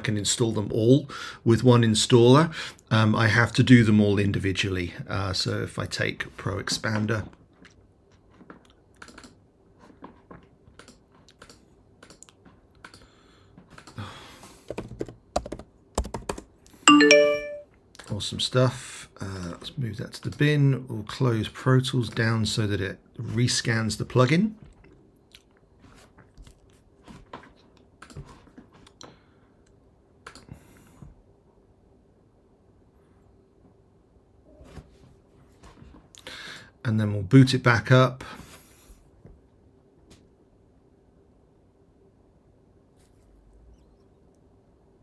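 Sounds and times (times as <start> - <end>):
typing on computer keyboard: 9.0 - 9.4, 14.7 - 16.6.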